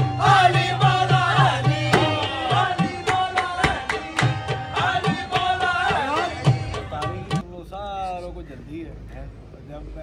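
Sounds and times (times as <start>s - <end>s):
hand drum beat: 0.0s - 7.4s
man singing: 0.0s - 7.4s.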